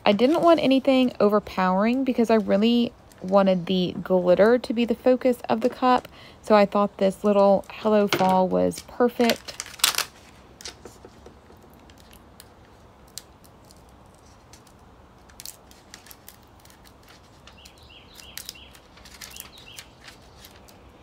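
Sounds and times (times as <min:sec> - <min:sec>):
crinkling of plastic sheet: 0:00.0 - 0:01.2, 0:07.4 - 0:21.0.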